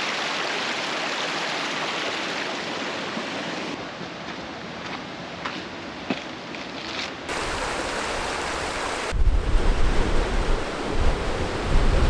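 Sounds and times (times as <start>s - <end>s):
stream water rushing: 0.0s - 12.0s
wind through palm leaves: 2.4s - 12.0s
wind buffeting microphone: 7.3s - 12.0s.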